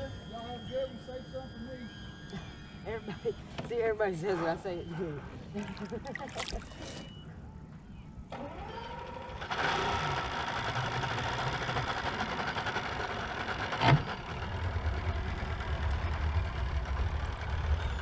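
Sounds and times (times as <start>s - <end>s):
outboard motor idling: 8.4s - 18.0s.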